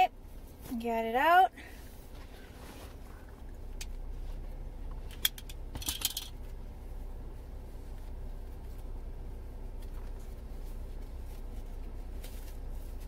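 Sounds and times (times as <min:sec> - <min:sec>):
low steady rumble: 0:00.0 - 0:13.0
face mask rustling and clicks: 0:02.0 - 0:06.6.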